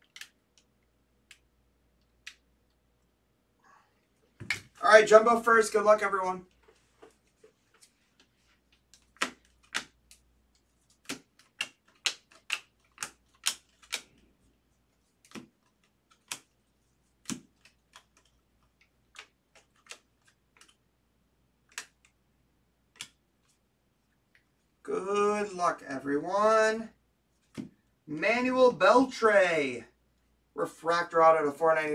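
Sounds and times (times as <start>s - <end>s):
trading cards flipping and snapping: 0.0s - 1.5s, 4.4s - 4.8s, 6.5s - 20.8s, 21.6s - 22.2s, 22.9s - 23.6s, 27.4s - 27.8s.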